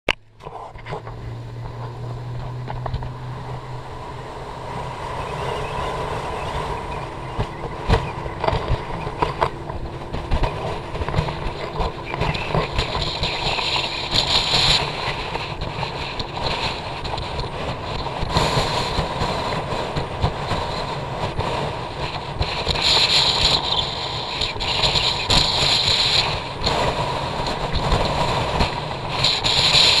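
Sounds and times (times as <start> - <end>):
boat motor drone: 0.1 - 30.0
wind buffeting microphone: 0.3 - 30.0.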